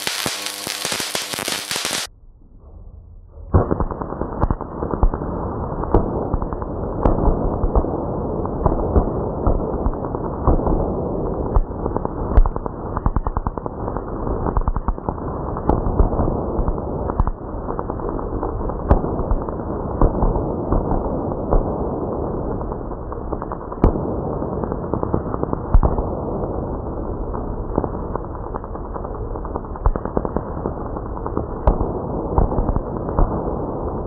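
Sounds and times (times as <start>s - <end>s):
crackle of electric sparks: 0.0s - 2.1s, 3.6s - 34.0s
sharp spark snaps: 0.0s - 2.1s.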